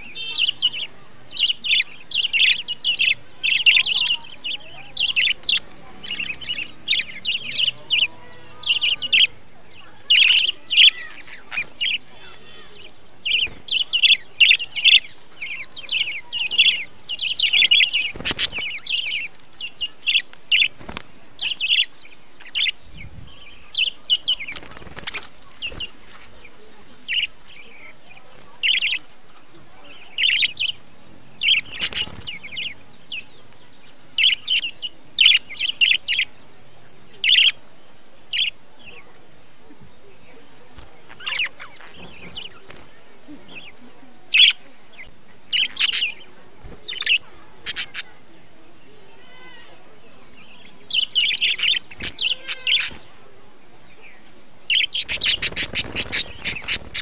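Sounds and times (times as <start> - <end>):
budgerigars chirping: 0.0 - 57.0
wings flapping: 13.3 - 14.2, 17.7 - 19.6, 20.3 - 21.3, 24.3 - 26.3, 31.5 - 32.6, 40.7 - 43.8, 51.6 - 53.2, 54.8 - 57.0.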